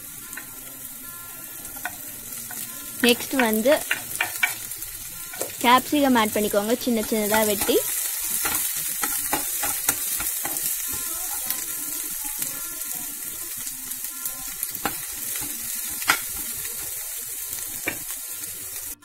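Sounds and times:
vegetables sizzling in oil: 0:00.0 - 0:19.0
steel spoon clicking on pan: 0:01.7 - 0:04.7, 0:07.0 - 0:11.7, 0:14.4 - 0:17.0, 0:17.6 - 0:18.2.

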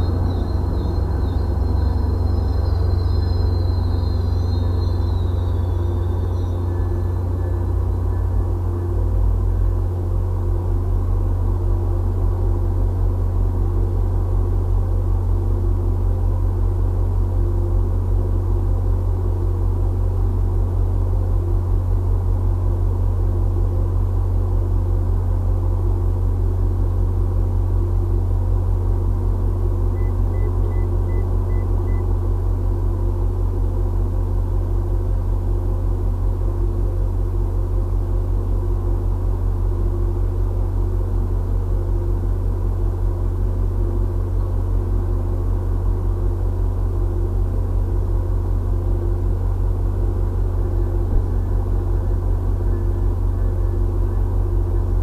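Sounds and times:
faint high beeps: 0:00.0 - 0:08.5, 0:30.0 - 0:32.1
engine idling: 0:00.0 - 0:55.0.

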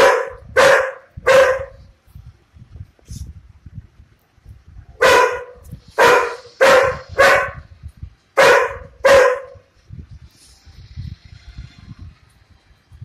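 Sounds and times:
dog barking: 0:00.0 - 0:01.8, 0:05.0 - 0:07.7, 0:08.4 - 0:09.7.

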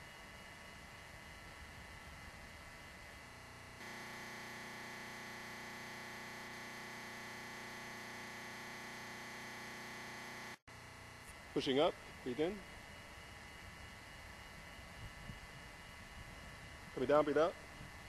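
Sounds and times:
electrical hum and buzz: 0:00.0 - 0:18.0.

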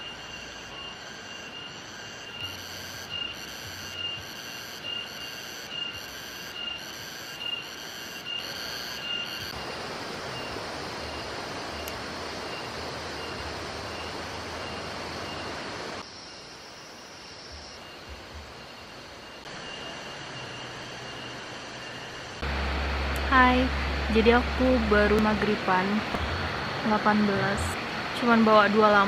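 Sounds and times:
steady hiss: 0:08.5 - 0:29.0.

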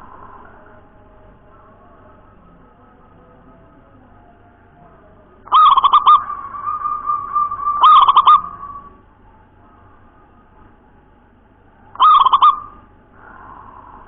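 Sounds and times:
dove cooing: 0:05.4 - 0:09.0, 0:11.9 - 0:14.0.

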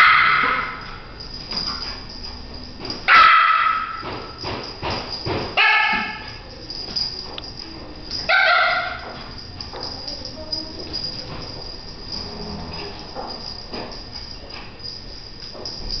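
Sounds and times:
dog barking: 0:00.0 - 0:00.9, 0:03.1 - 0:04.1, 0:05.6 - 0:06.4, 0:08.2 - 0:09.1.

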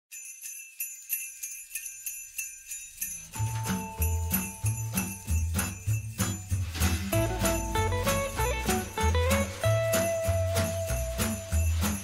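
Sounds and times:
sleigh bells shaken: 0:00.1 - 0:12.0
background music with bass line: 0:03.7 - 0:12.0.

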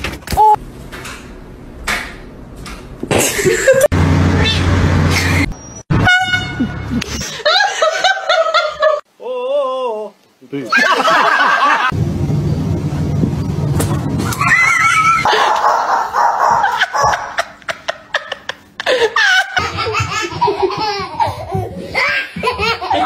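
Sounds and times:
people laughing: 0:10.7 - 0:11.9, 0:16.6 - 0:21.6, 0:22.3 - 0:23.0
low rumbling noise: 0:11.9 - 0:15.2.

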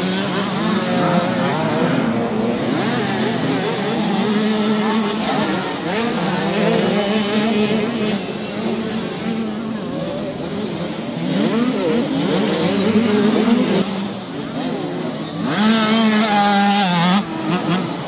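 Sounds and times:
motocross bikes revving: 0:00.0 - 0:18.0.

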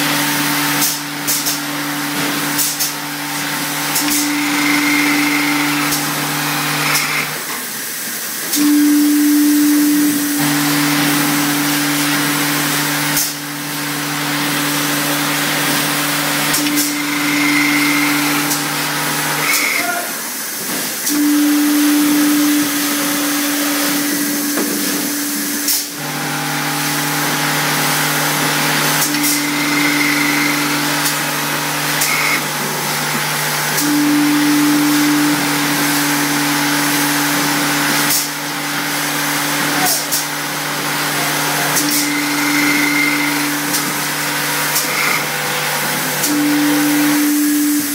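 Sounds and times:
sharp pneumatic clicks: 0:00.8 - 0:01.6, 0:02.6 - 0:03.0, 0:03.9 - 0:06.1, 0:16.5 - 0:18.7, 0:19.4 - 0:19.9, 0:32.0 - 0:32.4, 0:41.8 - 0:45.3
motor hum: 0:03.2 - 0:07.4, 0:14.2 - 0:19.8, 0:26.9 - 0:33.2, 0:41.7 - 0:46.5.

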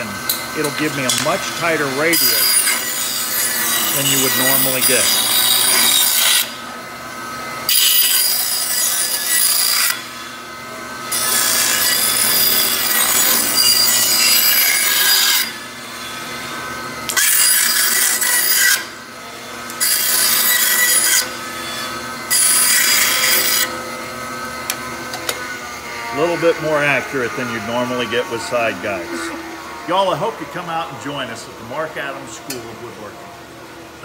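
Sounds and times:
bandsaw rasping through wood: 0:00.0 - 0:06.6, 0:07.7 - 0:10.2, 0:11.0 - 0:18.9, 0:19.8 - 0:23.8, 0:25.3 - 0:30.7
bandsaw running: 0:00.0 - 0:33.0.

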